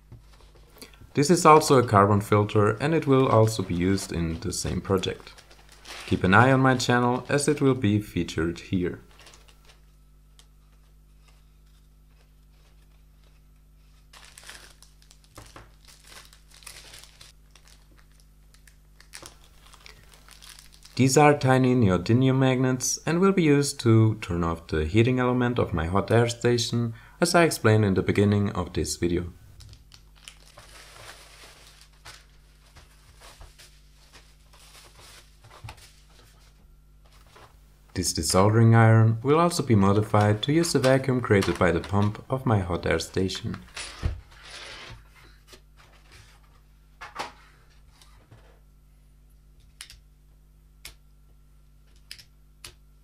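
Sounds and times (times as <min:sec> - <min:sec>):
steady low hum: 0:00.0 - 0:53.0
bubble wrap rustling: 0:00.2 - 0:07.7, 0:09.0 - 0:21.2, 0:29.7 - 0:37.6
plastic packaging crinkling: 0:01.5 - 0:07.6, 0:09.0 - 0:10.0, 0:10.7 - 0:21.1, 0:29.6 - 0:36.4.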